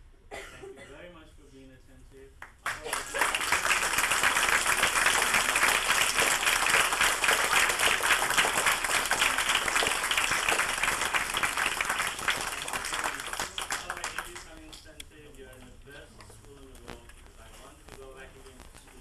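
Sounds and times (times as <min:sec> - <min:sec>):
audience applauding: 0:02.6 - 0:14.6.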